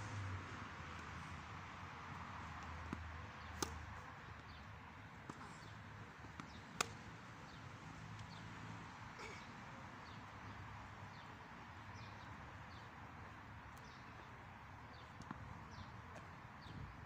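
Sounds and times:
background noise: 0.0s - 17.0s
tennis ball bouncing: 2.5s - 4.6s, 5.2s - 7.6s
racket hitting tennis ball: 2.8s - 3.8s, 6.4s - 7.0s.

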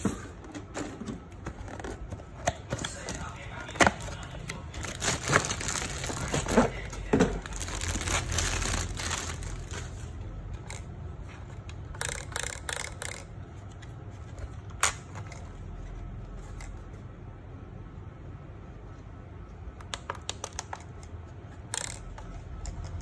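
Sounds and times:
plastic packaging crinkling: 2.7s - 10.2s.

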